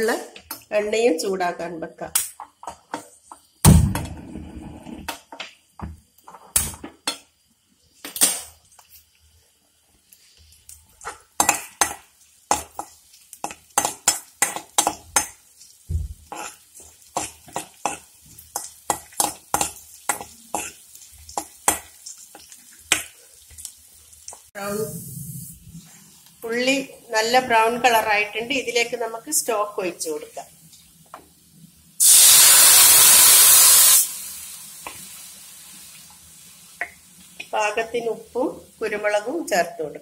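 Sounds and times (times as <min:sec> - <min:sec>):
faint frying sizzle: 0:00.0 - 0:40.0.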